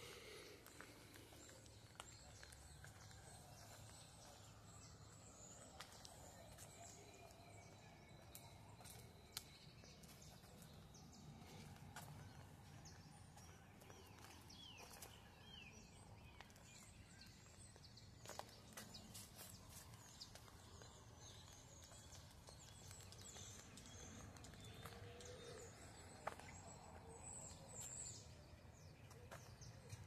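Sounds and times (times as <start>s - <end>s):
faint birds chirping: 0.0s - 30.0s.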